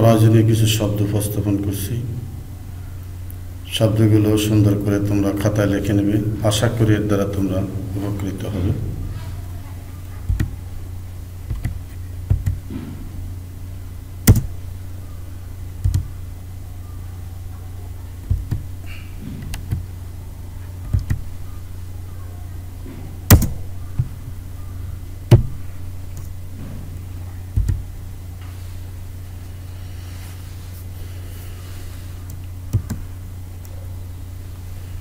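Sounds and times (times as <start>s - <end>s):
steady low hum: 0.0s - 35.0s
sharp knocks and clicks: 10.2s - 10.6s, 11.4s - 13.1s, 14.2s - 14.6s, 15.8s - 16.2s, 18.2s - 19.9s, 20.8s - 21.4s, 22.8s - 24.3s, 25.3s - 27.9s, 32.3s - 33.1s.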